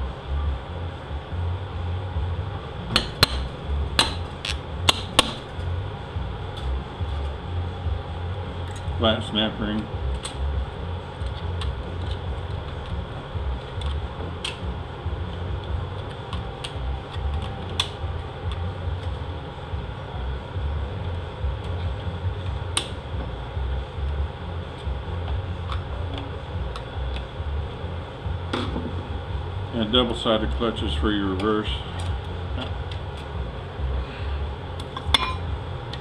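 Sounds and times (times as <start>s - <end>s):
low background hum: 0.0s - 36.0s.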